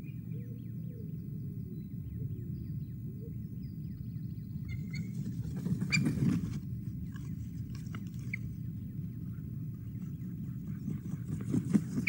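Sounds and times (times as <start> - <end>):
low microphone rumble: 0.0 - 12.0
bird wings flapping: 5.1 - 6.6, 10.8 - 12.0.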